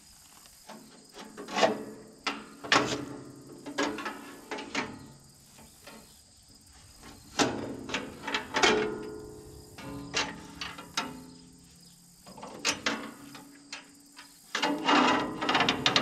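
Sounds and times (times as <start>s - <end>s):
sharp metallic clanks: 7.3s - 11.6s.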